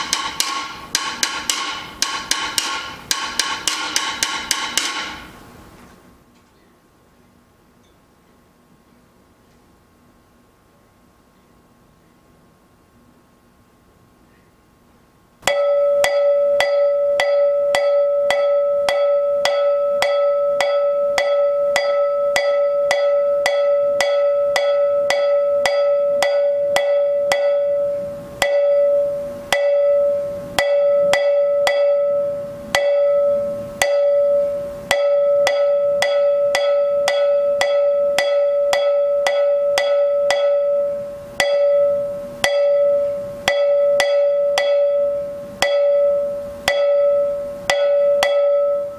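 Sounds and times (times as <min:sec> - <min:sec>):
cowbell struck with drumstick: 0:00.0 - 0:05.3, 0:15.4 - 0:48.9.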